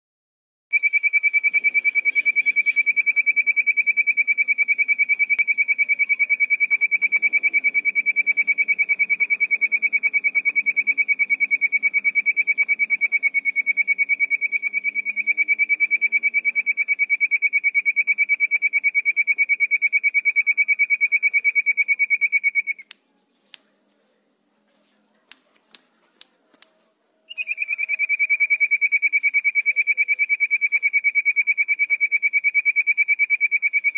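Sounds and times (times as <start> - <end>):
faint sharp clicks: 25.3 - 26.8
bird singing a fast trill: 27.3 - 33.9.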